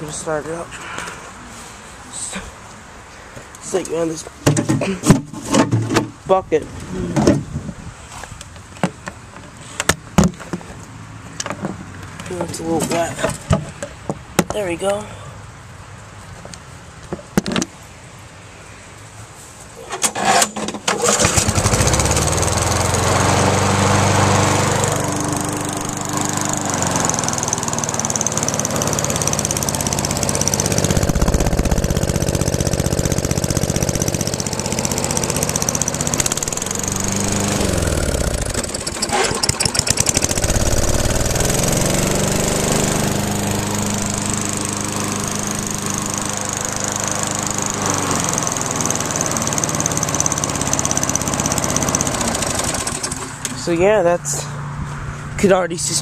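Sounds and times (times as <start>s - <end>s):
lawn mower engine running: 20.0s - 53.6s.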